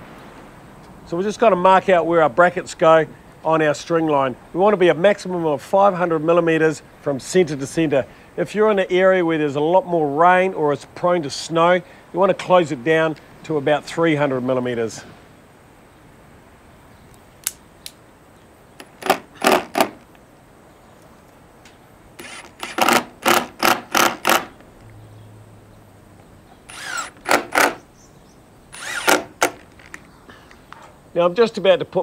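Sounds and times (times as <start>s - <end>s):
cordless drill driving screws: 18.8s - 20.1s, 22.2s - 24.6s, 26.7s - 27.8s, 28.7s - 30.0s.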